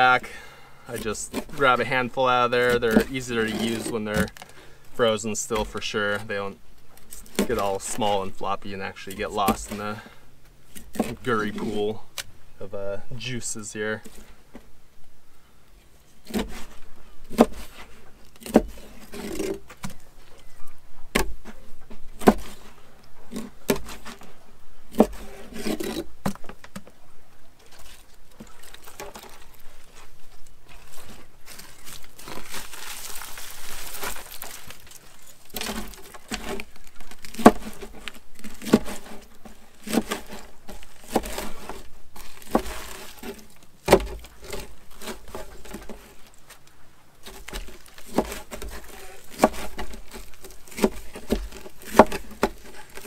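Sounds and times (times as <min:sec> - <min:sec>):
wet rustling: 0:27.6 - 0:53.0.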